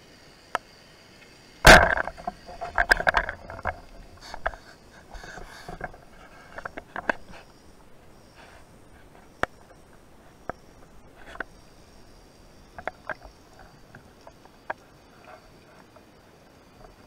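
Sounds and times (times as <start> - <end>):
speargun firing crack: 1.6 - 2.3
sharp clicks and knocks: 1.6 - 7.5, 12.7 - 14.8.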